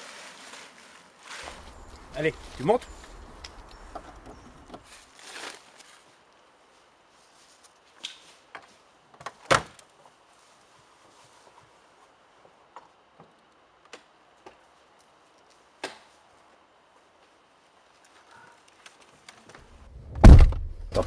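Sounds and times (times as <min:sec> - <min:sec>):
car door shutting: 0:20.0 - 0:21.0.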